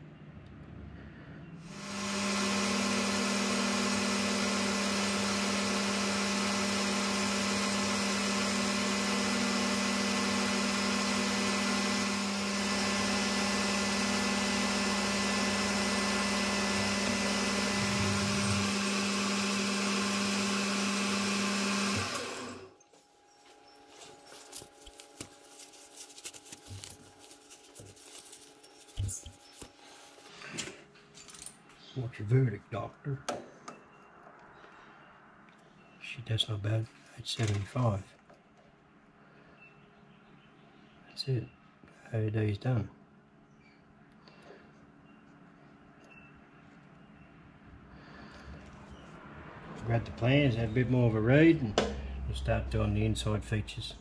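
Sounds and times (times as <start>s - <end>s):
metal lathe humming and whining: 1.7s - 22.8s
rag rustling: 22.7s - 30.5s.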